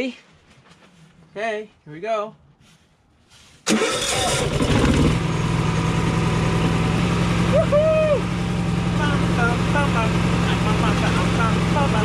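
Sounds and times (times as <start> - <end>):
starter cranking engine: 3.7 - 5.4
generator engine running: 3.7 - 12.0.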